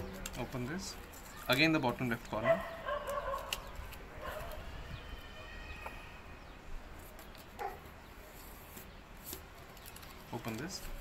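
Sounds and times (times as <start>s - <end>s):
paper being folded: 7.0s - 11.0s.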